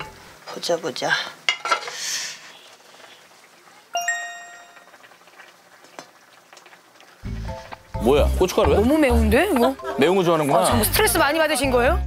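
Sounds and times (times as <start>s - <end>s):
bright metallic ding: 4.0s - 4.9s.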